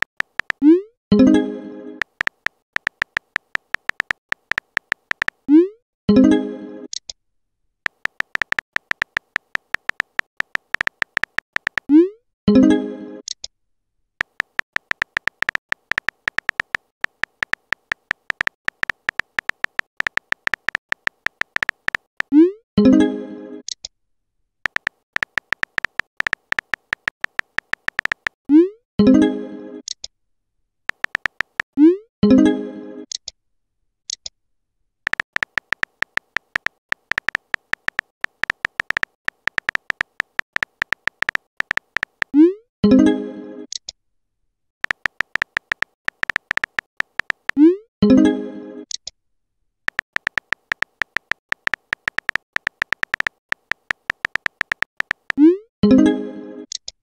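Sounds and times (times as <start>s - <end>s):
keyboard key clicks: 0.0s - 0.7s, 2.0s - 5.4s, 7.9s - 11.9s, 14.2s - 22.4s, 24.7s - 28.4s, 30.9s - 31.7s, 35.1s - 42.4s, 44.8s - 47.6s, 49.9s - 55.4s.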